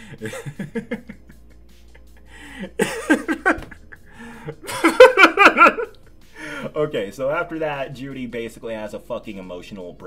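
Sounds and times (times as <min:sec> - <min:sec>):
man laughing: 0:00.0 - 0:06.0.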